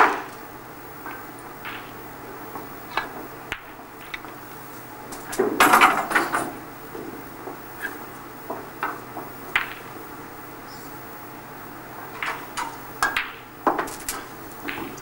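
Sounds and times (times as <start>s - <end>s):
snooker balls clicking together: 1.0s - 4.5s, 5.1s - 10.0s, 12.0s - 15.0s.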